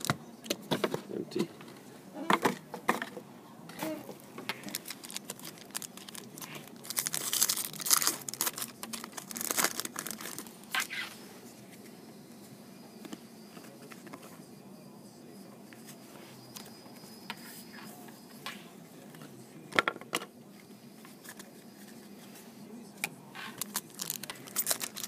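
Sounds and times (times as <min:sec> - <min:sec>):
foil pack tearing and crinkling: 0:04.6 - 0:10.5, 0:23.6 - 0:25.0.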